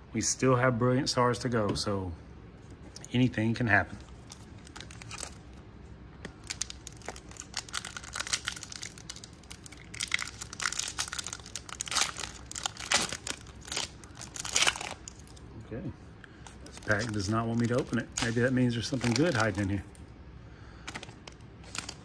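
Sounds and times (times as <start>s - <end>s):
foil wrapper crinkling and tearing: 4.0s - 5.5s, 6.4s - 15.5s, 16.6s - 19.8s, 20.9s - 22.0s.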